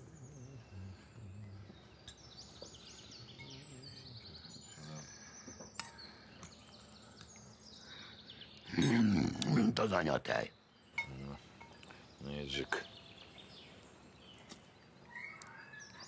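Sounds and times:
songbirds chirping: 0.0 - 16.0.

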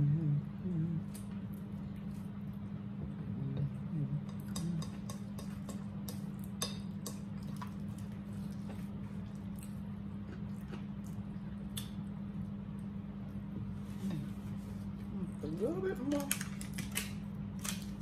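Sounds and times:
steady low hum: 0.0 - 18.0
fork clicking against plate: 4.3 - 7.2.

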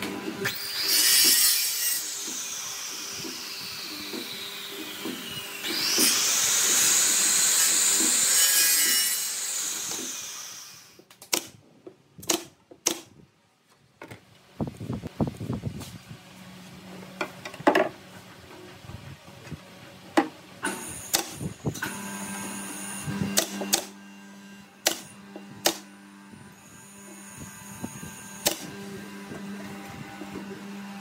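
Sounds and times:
miter saw cutting wood: 0.0 - 11.0, 20.6 - 31.0.

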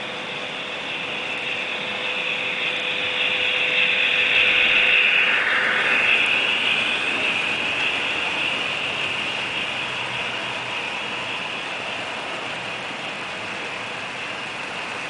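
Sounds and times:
model trains whirring and rattling: 0.0 - 15.0.

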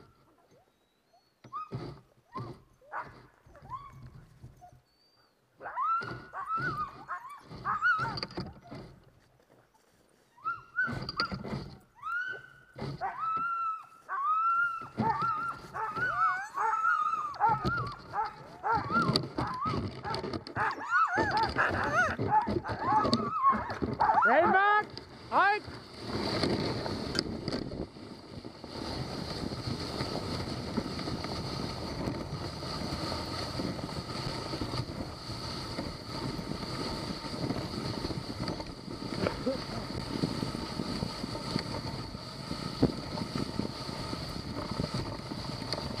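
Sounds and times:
dogs yelping and whining: 0.3 - 8.9, 10.2 - 11.4, 12.0 - 24.5.

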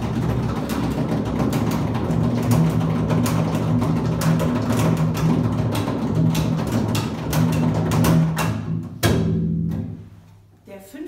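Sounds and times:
double basses playing low notes: 0.0 - 10.5.

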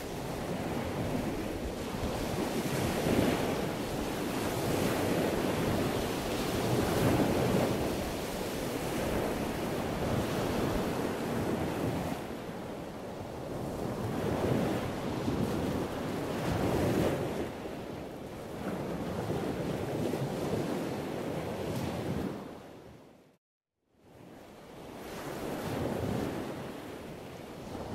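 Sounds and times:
wind buffeting microphone: 0.0 - 23.1.

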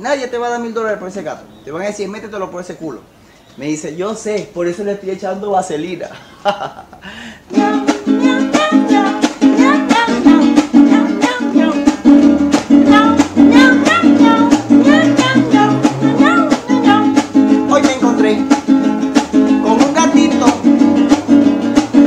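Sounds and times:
small string instrument strummed: 7.5 - 22.0.

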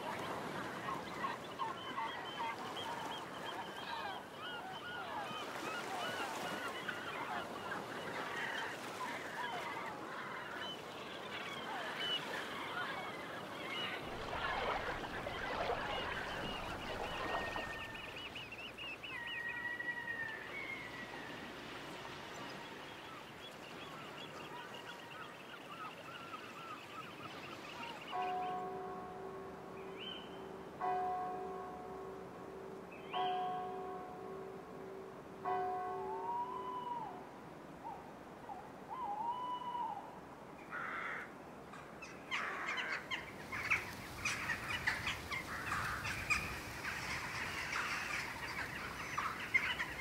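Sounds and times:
waterbirds chattering: 0.0 - 32.2, 41.8 - 50.0
whistled bird calls: 36.1 - 37.2, 38.9 - 40.1.

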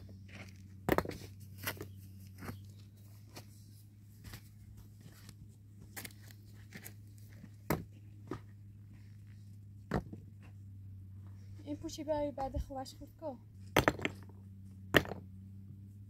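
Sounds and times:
steady low hum: 0.0 - 16.0
stones and tools knocking: 0.8 - 2.6, 9.9 - 10.3, 13.6 - 15.3.

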